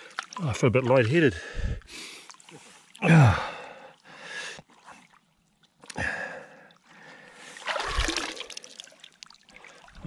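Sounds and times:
man sighing heavily: 3.0s - 3.8s.

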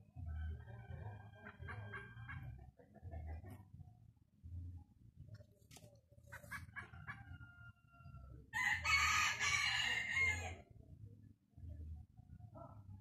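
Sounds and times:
rooster crowing: 7.2s - 10.6s.

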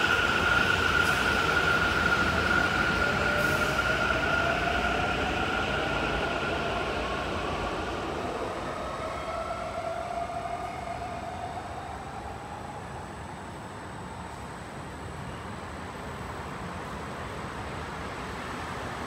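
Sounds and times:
train pulling out: 0.0s - 14.5s.

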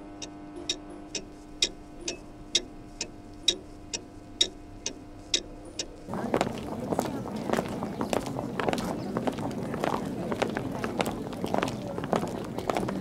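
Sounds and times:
clock ticking: 0.0s - 6.1s
steady droning tone: 0.0s - 11.4s.

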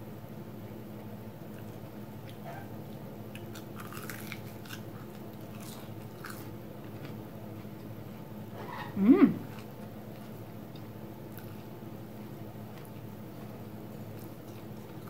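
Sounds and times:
steady low hum: 0.0s - 15.0s
crunchy bites and chewing: 3.3s - 7.9s.

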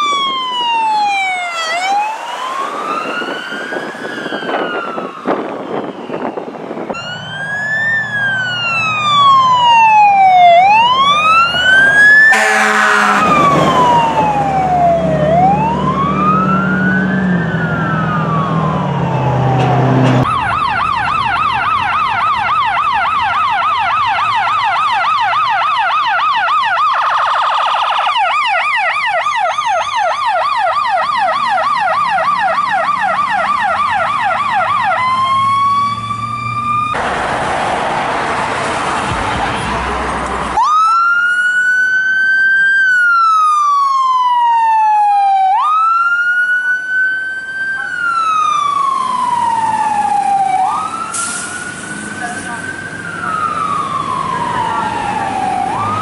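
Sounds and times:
siren wailing: 0.0s - 37.0s, 40.4s - 56.0s
siren yelp: 0.0s - 37.0s, 40.5s - 56.0s
truck engine: 0.0s - 56.0s
loud horn blast: 12.2s - 13.8s.

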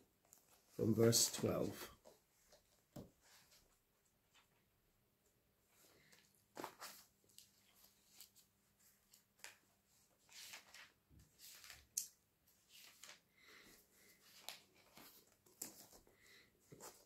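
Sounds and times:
paper pages rustling: 6.0s - 17.0s.

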